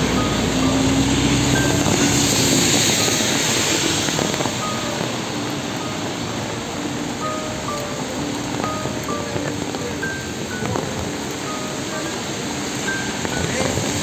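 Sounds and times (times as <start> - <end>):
vehicle engine passing: 0.0 - 5.3
rain hissing on street: 0.0 - 14.0.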